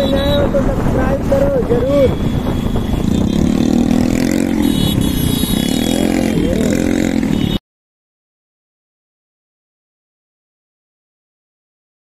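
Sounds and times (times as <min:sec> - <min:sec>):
motorcycle engine revving: 0:02.2 - 0:07.6.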